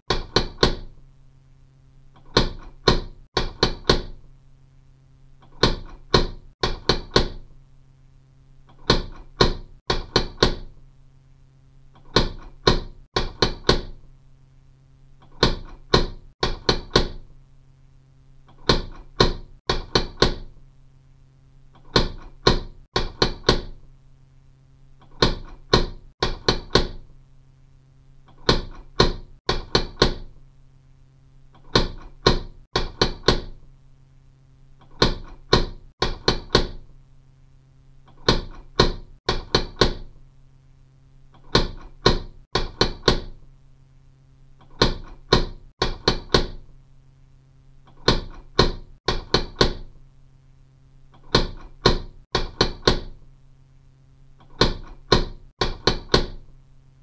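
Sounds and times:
faint steady hum: 0.0s - 52.3s, 53.1s - 54.8s
knocking on a door: 2.4s - 4.2s, 5.6s - 7.5s, 15.4s - 17.2s.

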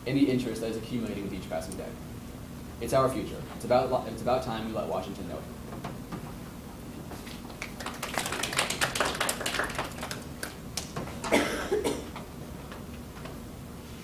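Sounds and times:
audience clapping: 7.2s - 11.0s.

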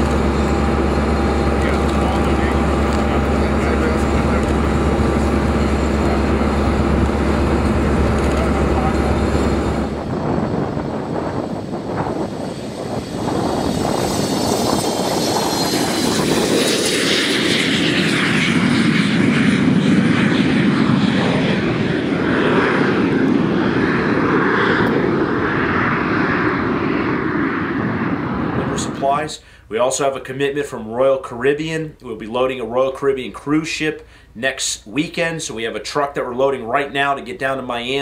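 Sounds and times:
airplane turbine whine: 0.0s - 38.0s
jet engine rushing roar: 0.0s - 38.0s.

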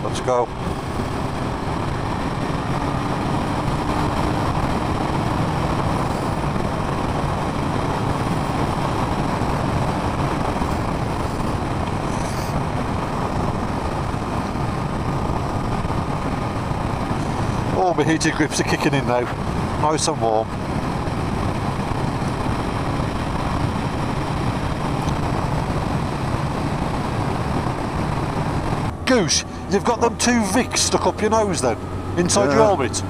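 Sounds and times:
motorcycle engine: 0.0s - 33.0s
wind rushing over microphone: 0.0s - 33.0s.

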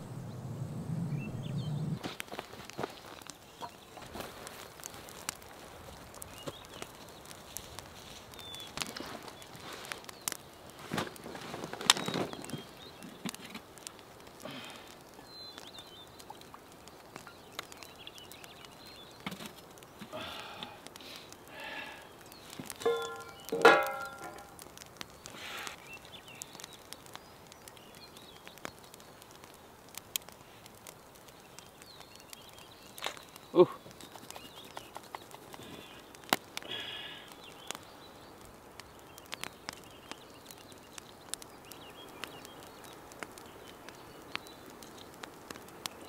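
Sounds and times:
faint high bird chirps: 0.0s - 2.0s.

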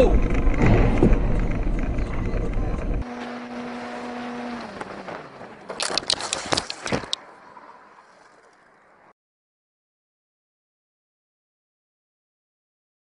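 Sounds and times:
vehicle crash impacts and scraping: 0.1s - 5.8s.

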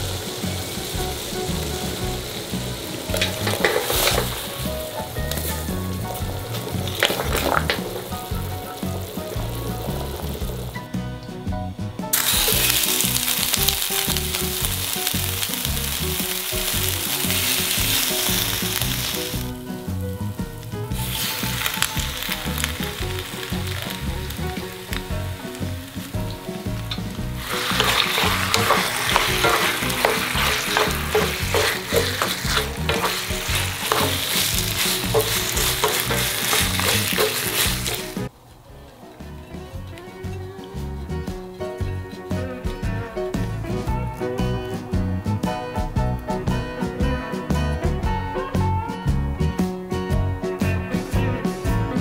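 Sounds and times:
pasta sizzling in frying pan: 0.0s - 11.0s, 12.1s - 38.3s
utensil clacking against pan: 1.0s - 10.3s, 21.0s - 38.3s.

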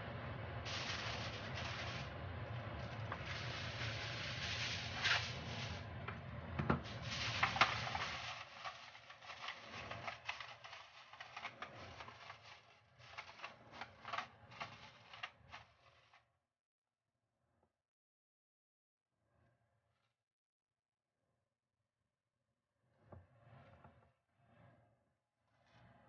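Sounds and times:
aluminium foil crinkling: 0.7s - 2.1s, 2.8s - 5.8s, 6.8s - 16.2s.

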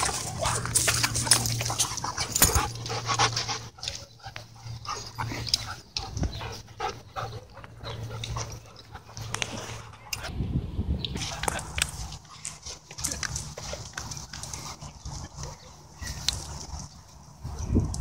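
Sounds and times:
dogs play-wrestling: 0.0s - 10.3s.

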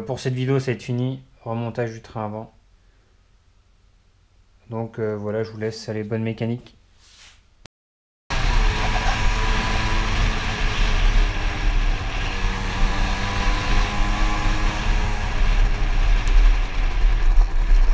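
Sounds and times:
motorcycle engine running: 8.3s - 17.9s.

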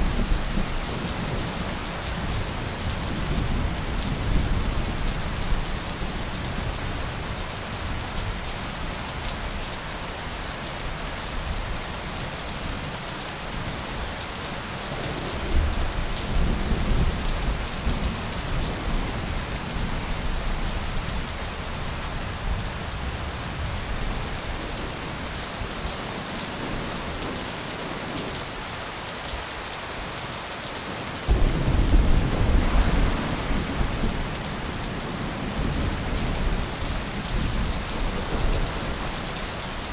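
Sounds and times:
steady rain: 0.0s - 39.9s
rolling thunder: 31.3s - 34.8s.

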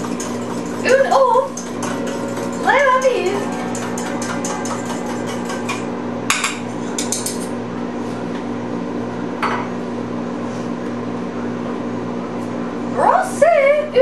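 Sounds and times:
utensil clinking metal bowl: 0.0s - 7.5s
low hum: 0.0s - 9.4s.

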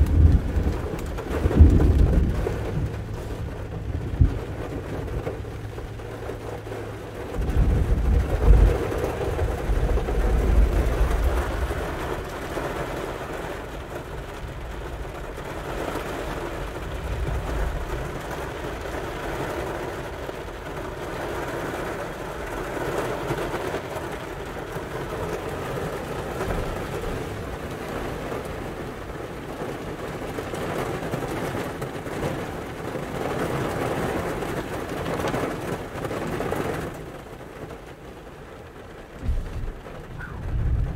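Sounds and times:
thunder rumbling: 0.0s - 29.5s, 39.0s - 40.9s
rain hissing on car: 0.0s - 40.9s.

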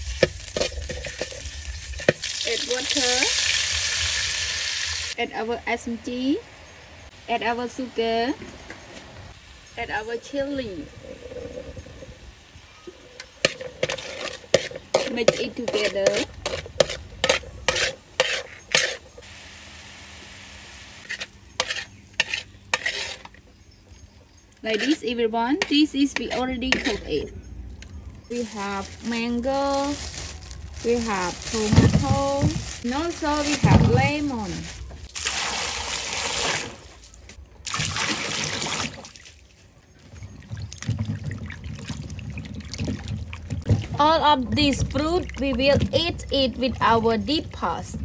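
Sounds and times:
metal spatula scraping wok: 0.0s - 3.4s, 13.4s - 19.2s, 21.0s - 23.4s, 24.6s - 27.3s
sauce bubbling and sizzling: 0.0s - 5.2s
hands washing fruit in water: 28.3s - 47.4s
water pouring into steel bowl: 35.1s - 36.8s.

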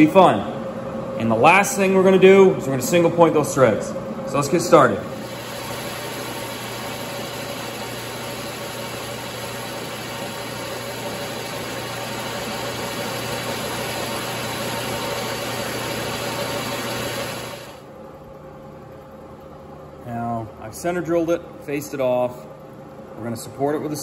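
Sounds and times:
lathe machine hum: 0.0s - 18.0s
lathe tool cutting metal: 5.2s - 17.8s.

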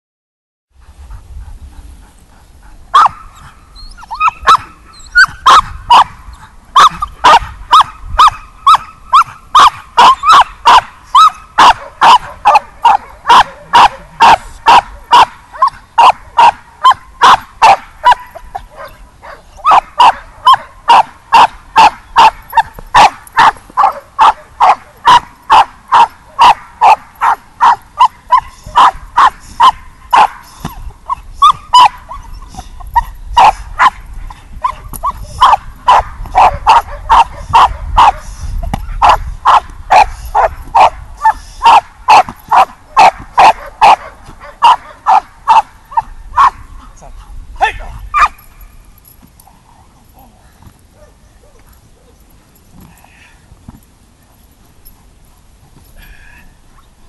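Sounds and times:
dog barking hard and fast: 2.9s - 46.9s, 47.6s - 48.4s.

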